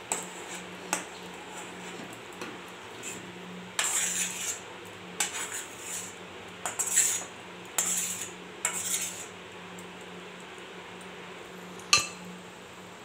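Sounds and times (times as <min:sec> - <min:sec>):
spatula scraping metal pan: 0:03.8 - 0:04.6, 0:05.2 - 0:09.4.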